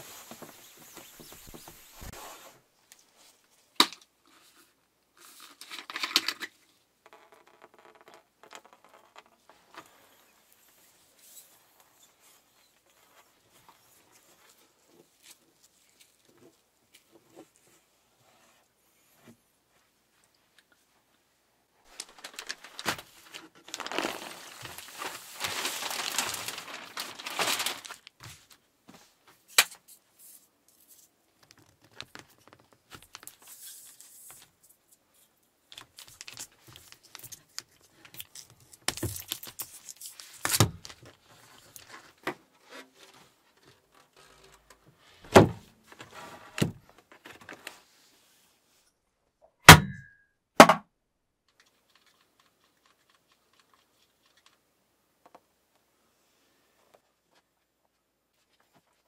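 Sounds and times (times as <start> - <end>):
plastic film crinkling and rustling: 0.0 - 3.9, 21.9 - 28.7, 30.8 - 44.9, 51.5 - 54.6.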